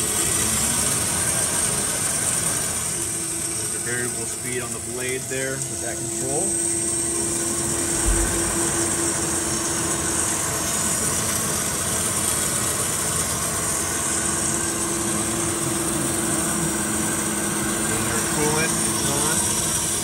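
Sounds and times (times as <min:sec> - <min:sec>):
bandsaw running: 0:00.0 - 0:20.0
short thump: 0:07.9 - 0:09.1.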